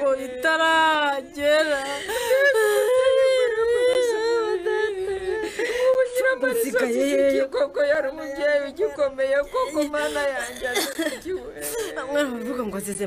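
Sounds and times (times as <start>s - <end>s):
woman wailing in grief: 9.4s - 12.3s.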